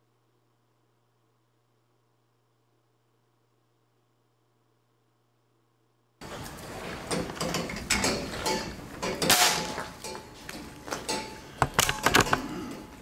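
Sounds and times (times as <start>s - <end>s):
camera rig clicks and knocks: 11.6s - 12.4s.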